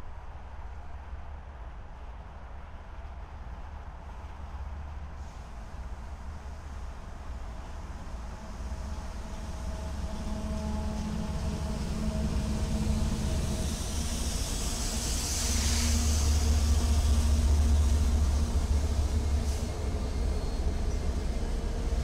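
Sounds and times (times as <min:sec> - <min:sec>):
diesel locomotives rumbling past: 0:04.3 - 0:22.0
brief hiss: 0:13.6 - 0:18.0.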